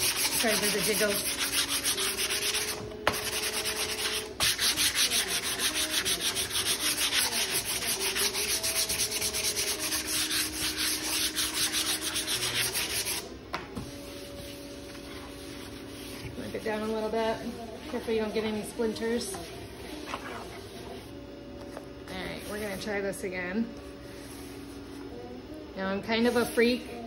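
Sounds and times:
sandpaper rasping on wood: 0:00.0 - 0:13.3.

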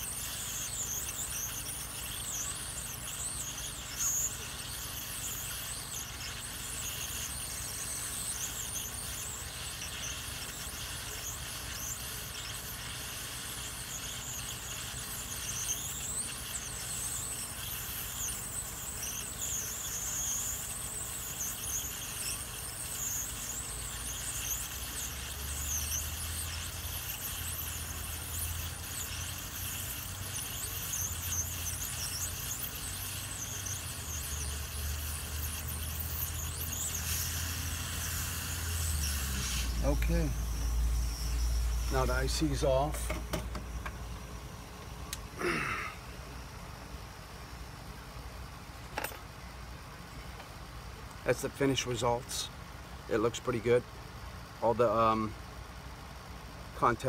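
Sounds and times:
high wavering whistle: 0:00.0 - 0:43.6
hot air gun hissing: 0:00.0 - 0:46.7, 0:51.1 - 0:53.8.

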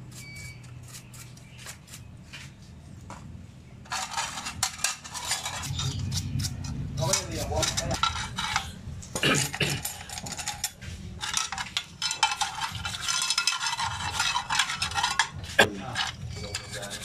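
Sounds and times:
paintbrush scrubbing metal parts: 0:03.8 - 0:17.0
metal parts clinking against pan: 0:03.9 - 0:17.0.

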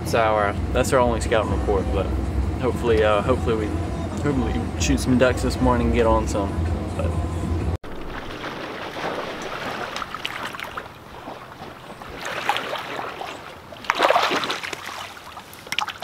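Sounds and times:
water sloshing from wading: 0:07.8 - 0:16.0.

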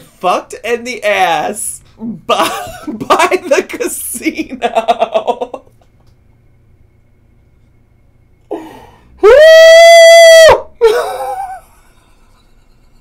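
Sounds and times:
man screaming: 0:09.2 - 0:10.7
man's wavering cry: 0:09.2 - 0:11.0.

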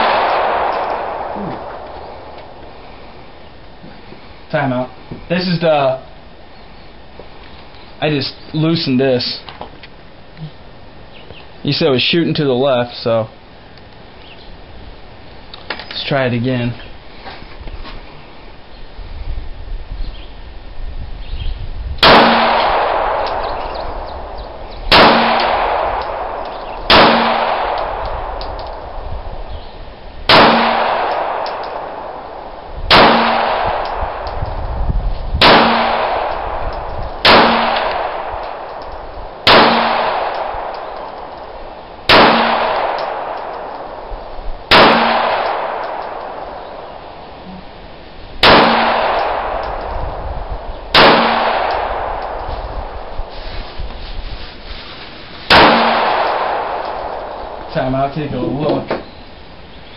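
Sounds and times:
pistol shots echoing: 0:00.0 - 0:02.4, 0:22.0 - 0:28.9, 0:30.3 - 0:34.4, 0:35.4 - 0:41.5, 0:42.1 - 0:44.1, 0:44.7 - 0:47.1, 0:48.4 - 0:50.0, 0:50.9 - 0:53.1, 0:55.5 - 0:57.7.

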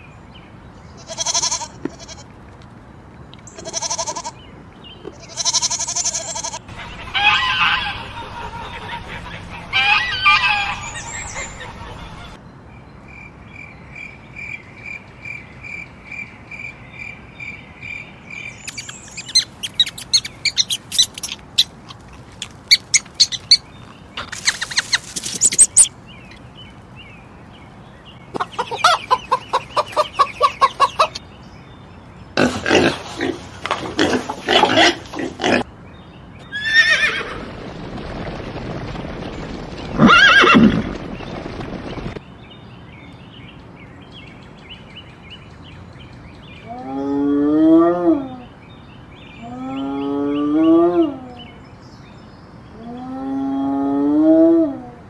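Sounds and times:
high peeps: 0:18.5 - 0:23.6, 0:24.2 - 0:25.9
rapid squeaks and chirps: 0:18.6 - 0:26.4
goose calling: 0:18.7 - 0:23.6
horse whinny: 0:36.5 - 0:37.4, 0:40.0 - 0:40.8.

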